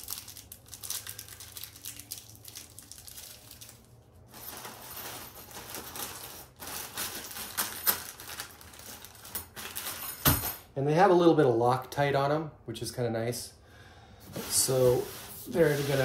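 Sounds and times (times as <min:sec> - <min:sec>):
plastic bag crinkling: 0:00.0 - 0:10.1.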